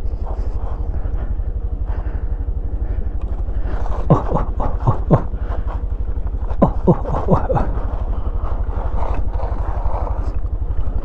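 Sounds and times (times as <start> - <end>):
scooter engine running slowly: 0.0 - 11.0.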